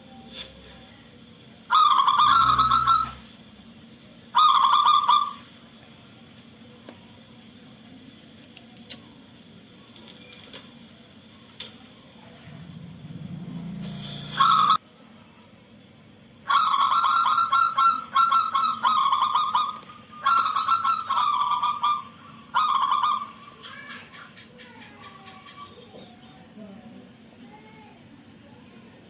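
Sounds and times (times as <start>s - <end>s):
faint bird calls: 1.6s - 9.2s, 14.1s - 14.8s, 16.4s - 26.7s
dove cooing song: 1.7s - 3.3s, 4.3s - 5.5s, 16.5s - 26.5s.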